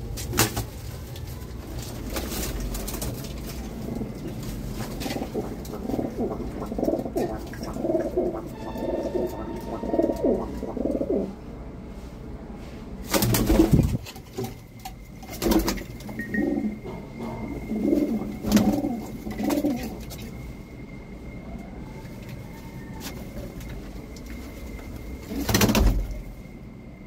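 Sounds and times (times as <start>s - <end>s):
pigeon cooing: 3.5s - 11.4s, 15.4s - 20.3s.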